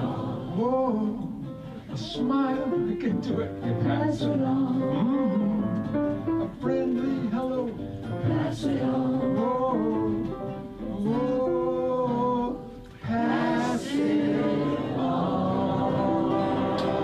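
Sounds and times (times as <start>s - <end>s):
acoustic guitar: 0.0s - 17.0s
piano: 0.0s - 17.0s
man singing long notes: 9.4s - 13.3s.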